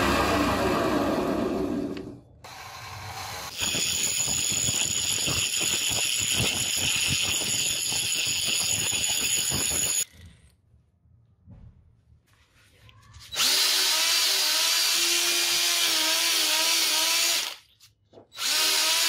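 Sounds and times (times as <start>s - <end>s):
angle grinder grinding metal: 3.0s - 10.1s.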